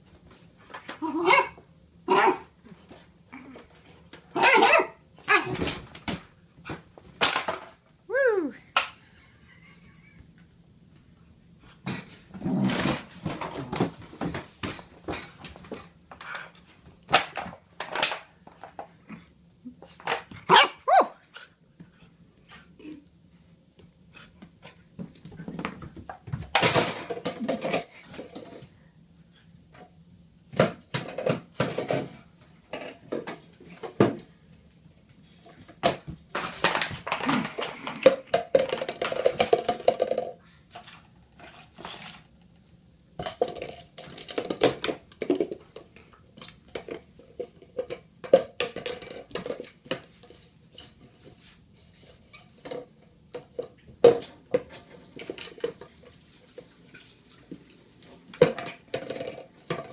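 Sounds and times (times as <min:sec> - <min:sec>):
plastic jar clattering on tile floor: 0:07.2 - 0:07.8, 0:17.1 - 0:19.0, 0:25.0 - 0:28.7, 0:30.5 - 0:34.3, 0:35.6 - 0:42.3, 0:43.2 - 0:57.0, 0:58.2 - 0:59.9.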